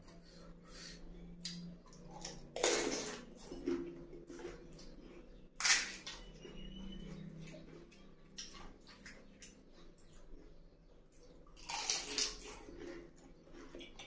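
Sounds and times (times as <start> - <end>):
crunching crisp shells: 5.6 - 6.7, 11.5 - 14.0.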